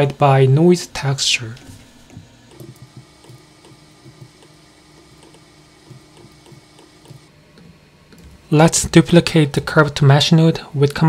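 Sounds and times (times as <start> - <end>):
faint steady hum: 0.0 - 11.0
computer mouse clicks: 2.5 - 4.5.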